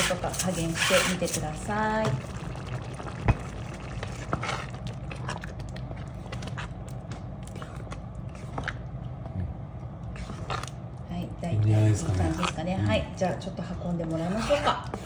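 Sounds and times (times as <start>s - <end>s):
spatula stirring thick beans: 0.0s - 1.6s
steady low hum: 0.0s - 15.0s.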